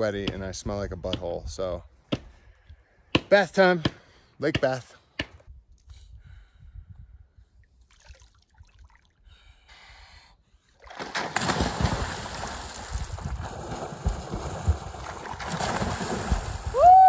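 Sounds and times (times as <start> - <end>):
people splashing in lake water: 10.8 - 17.0.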